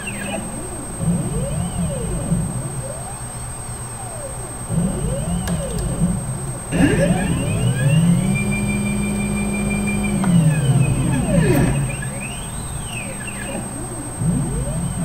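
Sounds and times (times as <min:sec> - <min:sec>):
stepper motors whining: 0:00.0 - 0:15.0.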